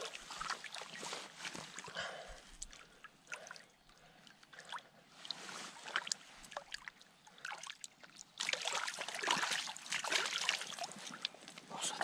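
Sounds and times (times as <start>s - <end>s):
river water sloshing around hands: 0.0s - 12.0s
fish splashing in water: 8.4s - 11.3s.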